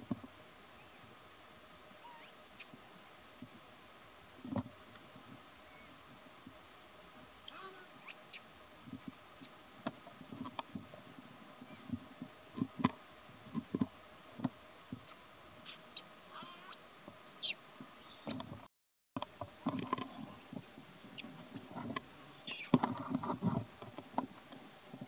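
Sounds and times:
high thin monkey chirps: 2.0s - 2.7s, 7.5s - 8.5s, 14.6s - 18.7s, 20.0s - 22.8s.

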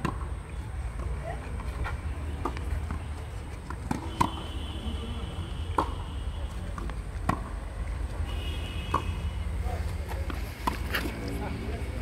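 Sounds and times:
racket hitting tennis ball: 3.7s - 4.5s, 5.7s - 6.0s, 6.7s - 7.6s, 8.9s - 9.2s.

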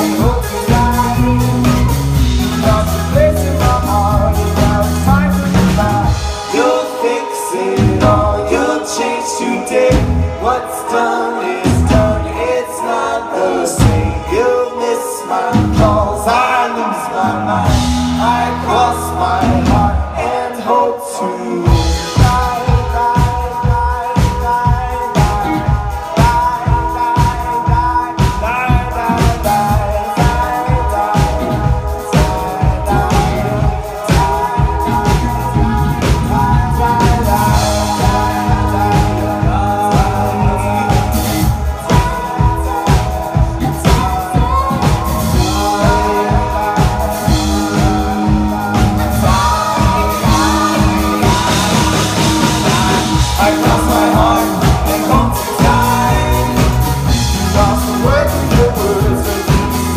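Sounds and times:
drum beat: 0.0s - 6.6s, 21.7s - 59.9s
bass guitar: 0.0s - 6.8s, 7.8s - 8.8s, 9.7s - 10.7s, 11.6s - 13.1s, 13.7s - 14.5s, 15.5s - 20.8s, 21.6s - 59.9s
keyboard: 0.0s - 59.9s
woman singing: 2.5s - 59.9s.

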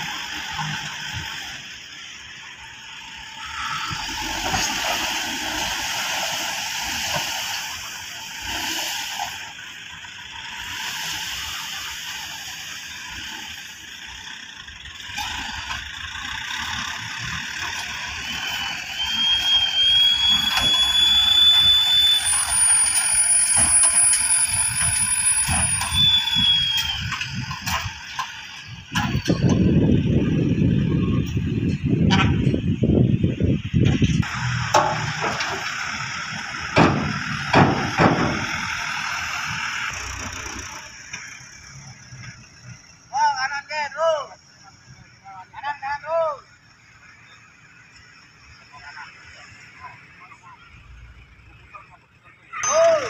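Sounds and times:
dump trucks working: 0.0s - 53.0s
high metallic squeal: 3.1s - 5.7s, 17.9s - 29.8s
soil rushing from truck bed: 3.6s - 9.6s.

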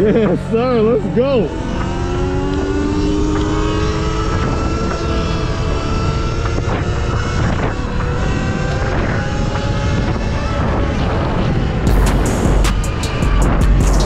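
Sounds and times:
electric motor whining: 0.0s - 13.8s
wind rush on microphone: 0.0s - 14.0s.

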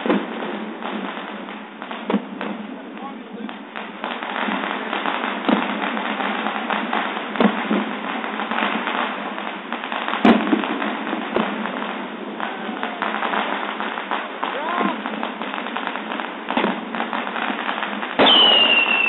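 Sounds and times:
firework fountain crackling hiss: 0.0s - 19.0s
sharp bangs: 18.2s - 19.0s.

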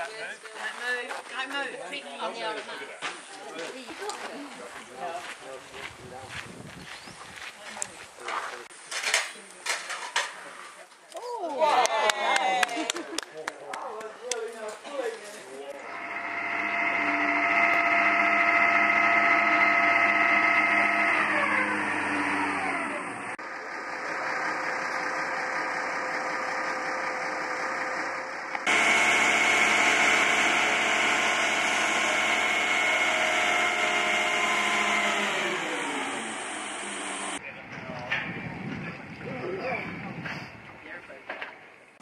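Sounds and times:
tractor hoist multi-tone whine: 15.7s - 37.4s.

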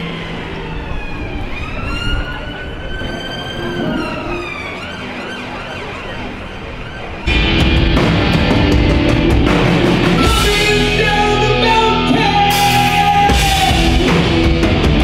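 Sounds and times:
emergency vehicle siren: 0.0s - 7.7s
street traffic: 0.0s - 15.0s
loud rock music: 7.3s - 15.0s.

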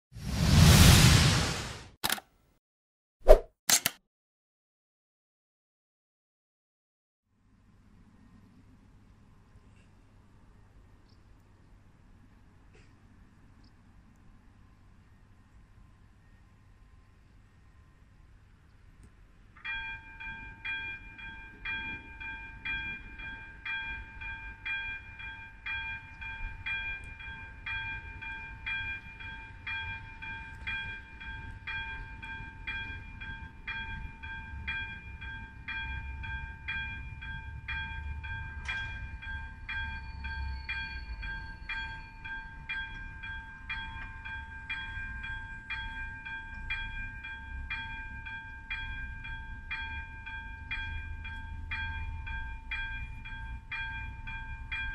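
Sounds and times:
level crossing warning bell dinging: 19.6s - 54.9s.

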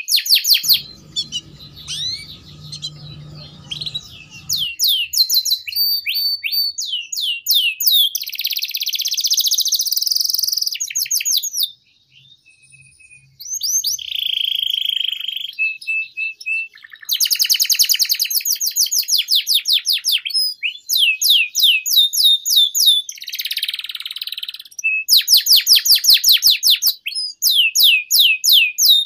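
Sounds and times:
canary singing: 0.6s - 4.8s.

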